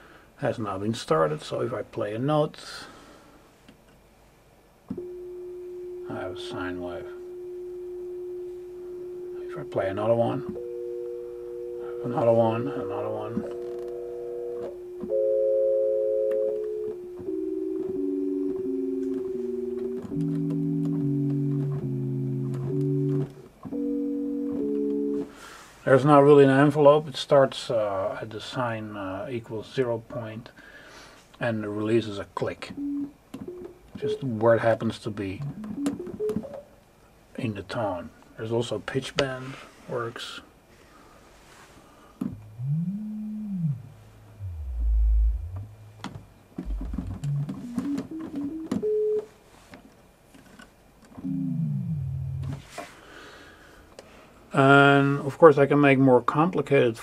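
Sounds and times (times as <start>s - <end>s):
sine-wave synthesizer chords: 4.9s - 25.3s, 42.4s - 49.2s, 51.2s - 52.6s
clicks at tone edges: 16.3s - 23.4s, 44.4s - 48.8s.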